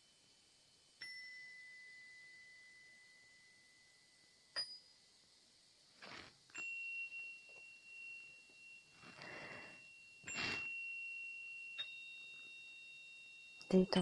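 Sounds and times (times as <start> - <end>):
high ringing chime tones: 6.6 - 14.0.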